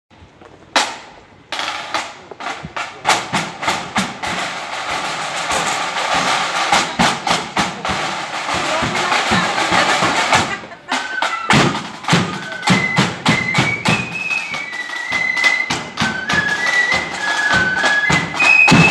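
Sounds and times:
marching band drums: 0.5s - 18.9s.

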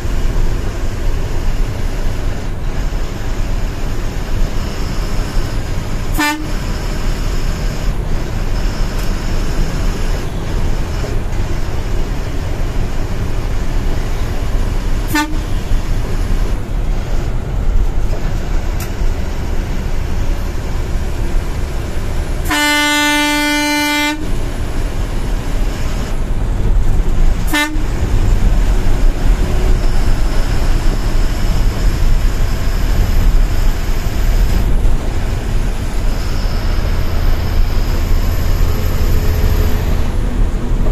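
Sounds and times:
bus engine and road noise: 0.0s - 40.9s
horn toots and blasts: 2.7s - 12.4s, 13.2s - 16.7s, 21.4s - 26.2s, 27.3s - 31.8s.

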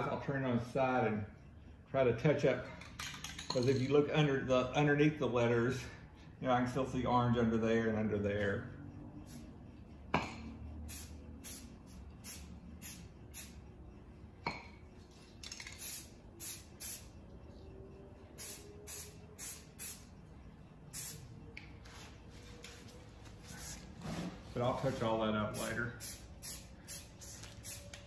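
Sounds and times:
spray paint hissing: 9.2s - 9.6s, 10.8s - 13.6s, 15.1s - 17.2s, 18.3s - 20.2s, 20.9s - 21.3s, 22.8s - 23.9s, 24.9s - 28.0s.

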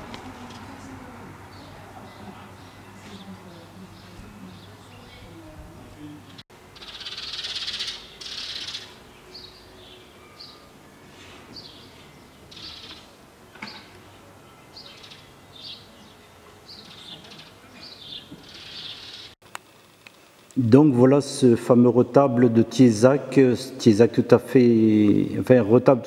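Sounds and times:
small birds chirping: 0.3s - 10.7s, 11.5s - 19.4s.

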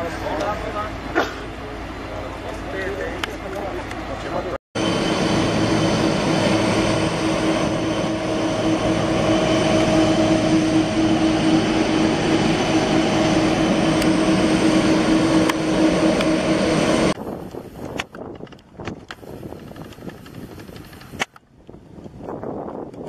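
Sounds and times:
jet engines roaring: 0.0s - 17.2s.

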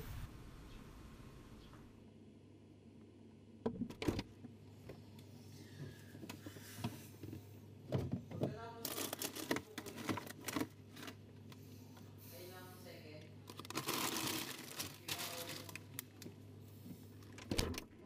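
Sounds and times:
containers clicking and rustling: 8.8s - 11.2s
refrigerator door opening: 17.3s - 18.0s.

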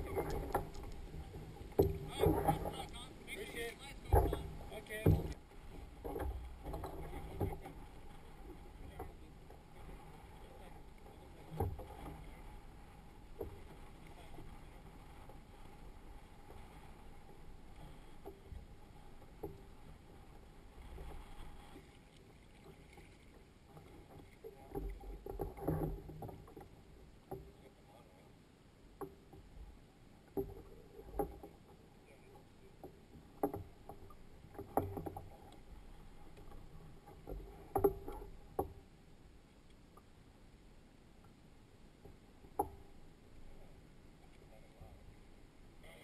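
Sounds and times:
paddle knocking on kayak hull: 0.0s - 5.4s
faint water noise: 0.0s - 46.0s.

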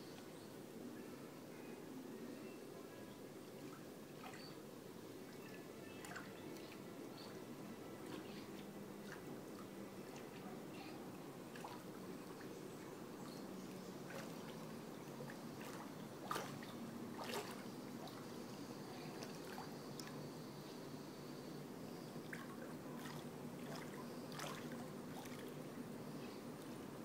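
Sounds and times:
pool water lapping and trickling: 0.0s - 27.0s
water splashes: 5.2s - 6.9s, 11.5s - 12.5s, 14.0s - 18.4s, 22.2s - 25.7s.

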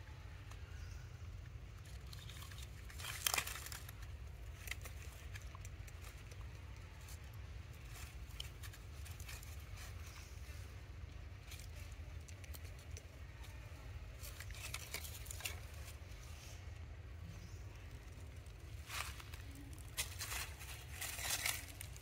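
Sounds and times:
steady low rumble: 0.0s - 22.0s
dry leaves rustling: 1.8s - 16.7s, 17.4s - 22.0s.

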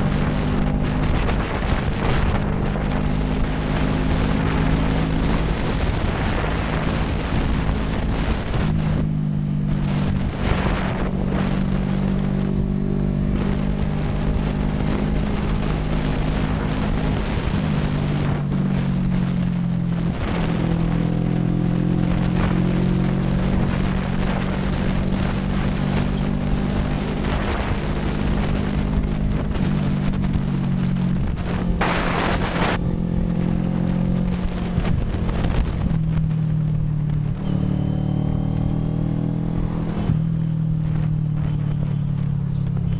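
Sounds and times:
motorcycle engine running: 0.0s - 42.9s
wind rushing over microphone: 0.0s - 42.9s.

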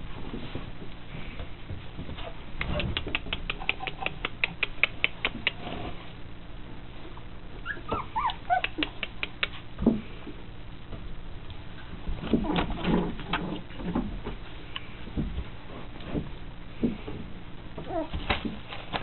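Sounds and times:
puppies whimpering: 7.6s - 8.8s.

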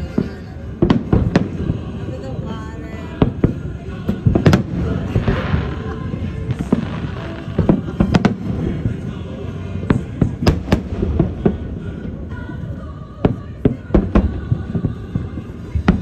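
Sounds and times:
fireworks bangs: 0.0s - 12.2s, 13.2s - 16.0s
fireworks crackling hiss: 0.0s - 16.0s.

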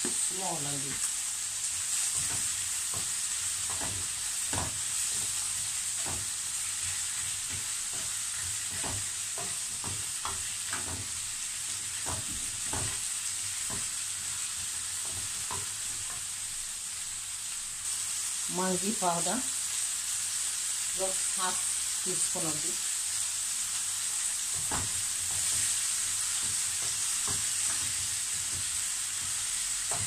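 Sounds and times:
vegetables sizzling in a frying pan: 0.0s - 30.0s
wooden spatula scraping a pan: 1.9s - 16.3s.

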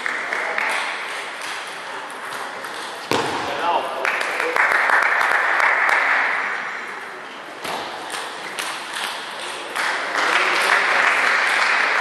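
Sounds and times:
crowd noise hiss: 3.0s - 12.0s.

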